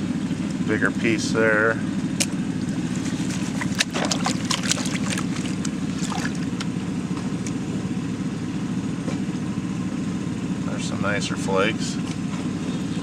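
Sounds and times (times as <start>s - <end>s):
steady engine drone: 0.0s - 13.0s
water sloshing in a pan: 2.5s - 6.7s.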